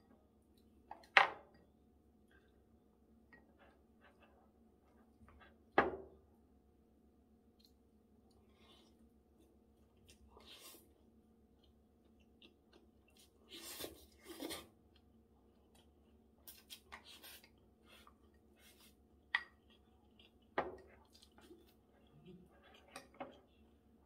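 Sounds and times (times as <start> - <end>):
quiet chewing: 7.5 - 24.0.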